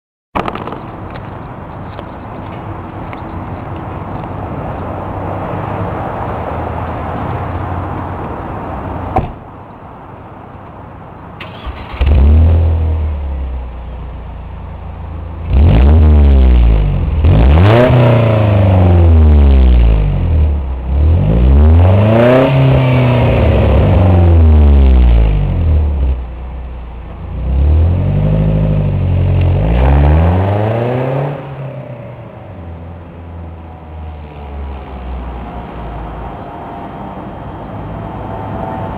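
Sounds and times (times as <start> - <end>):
car engine revving: 15.4 - 26.2, 27.2 - 32.3.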